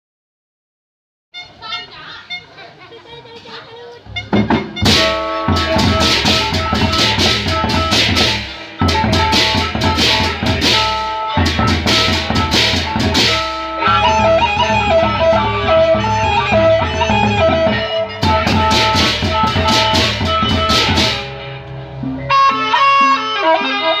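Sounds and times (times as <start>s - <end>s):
stepping melody: 1.4s - 24.0s
steady pitched tones: 4.0s - 23.7s
barrel drums beaten with sticks: 4.1s - 16.2s, 16.9s - 21.4s.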